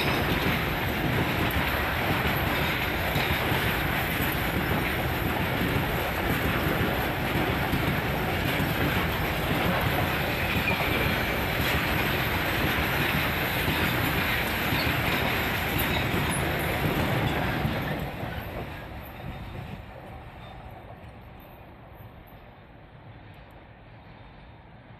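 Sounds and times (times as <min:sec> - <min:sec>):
freight train rolling past: 0:00.0 - 0:24.9
train wheels rumbling on rails: 0:00.0 - 0:24.9.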